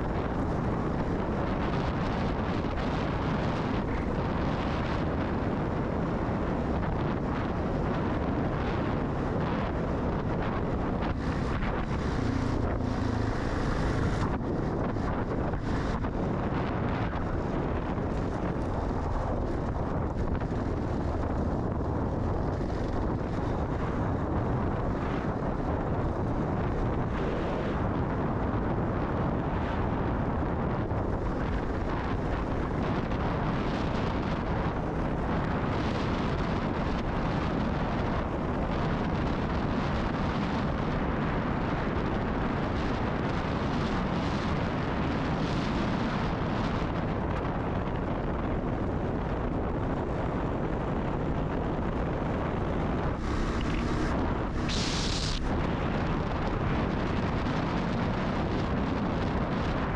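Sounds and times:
wind noise on microphone: 0:00.0 - 0:59.9
motorcycle engine running: 0:08.7 - 0:24.8, 0:52.6 - 0:56.0.

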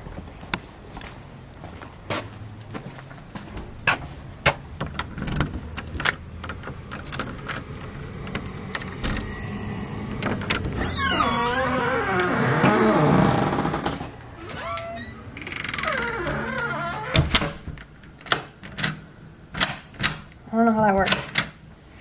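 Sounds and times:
door creaking open: 0:03.5 - 0:19.0
doorknob turning: 0:04.5 - 0:20.4
key clicking in deadbolt: 0:04.8 - 0:10.8.

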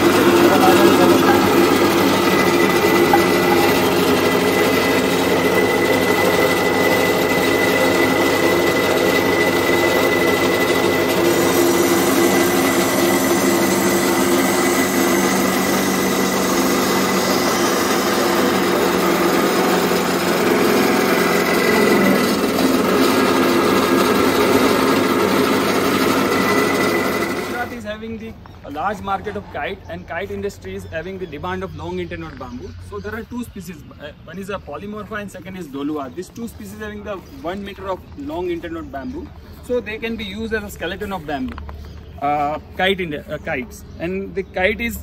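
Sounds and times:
drill press motor hum: 0:00.0 - 0:27.8
high whine: 0:00.0 - 0:27.8.

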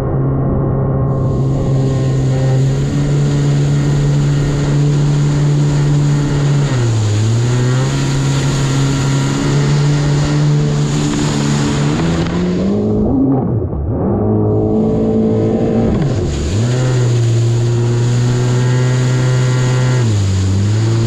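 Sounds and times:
jet ski engine running: 0:00.0 - 0:21.0
rushing spray hissing: 0:01.2 - 0:12.8.

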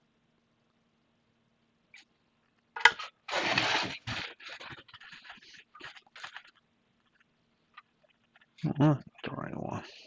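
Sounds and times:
scraping and rustling: 0:02.8 - 0:08.6
small scrapes and knocks: 0:02.8 - 0:08.6.

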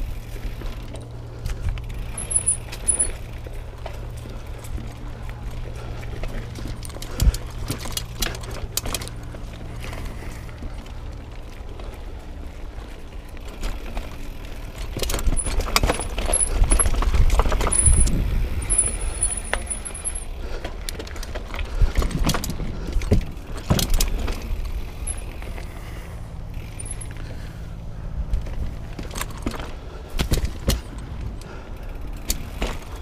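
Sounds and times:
mountain bike rattling over rocks: 0:00.0 - 0:33.0
bike frame and chain knocks: 0:01.8 - 0:03.4, 0:14.8 - 0:20.3, 0:22.0 - 0:25.4, 0:29.0 - 0:31.1.

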